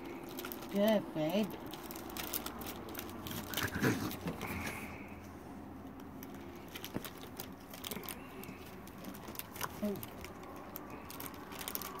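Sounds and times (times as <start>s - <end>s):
raccoons chewing grapes: 0.0s - 12.0s.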